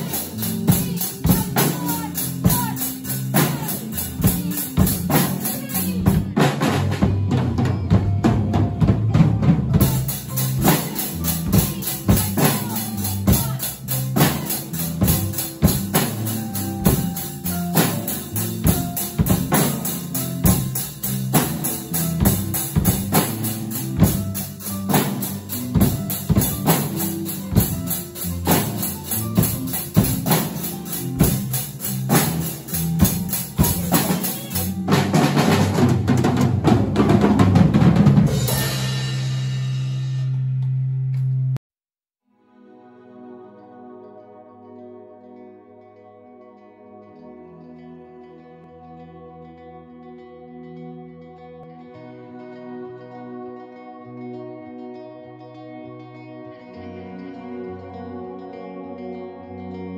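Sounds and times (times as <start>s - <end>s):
drum kits playing rock beat: 0.0s - 41.5s
backing track with bass line: 0.0s - 41.6s.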